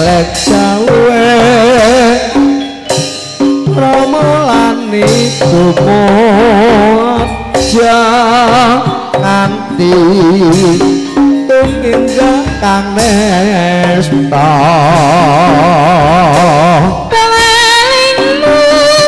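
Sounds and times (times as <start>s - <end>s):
woman singing with vibrato: 0.0s - 2.6s, 3.6s - 19.0s
hand drum strokes: 0.0s - 19.0s
metallophone tones: 0.0s - 19.0s.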